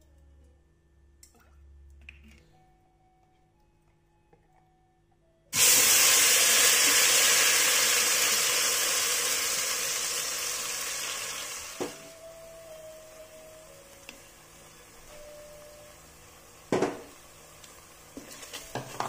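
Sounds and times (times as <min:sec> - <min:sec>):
paste sizzling in hot oil: 0:05.6 - 0:12.2.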